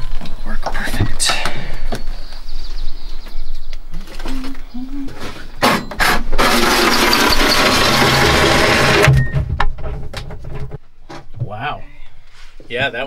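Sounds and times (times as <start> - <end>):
handheld power tool running: 6.4 - 9.1.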